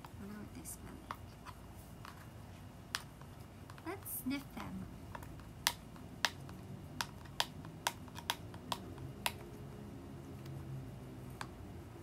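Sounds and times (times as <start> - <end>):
cardboard box clicks and taps: 5.1 - 9.5.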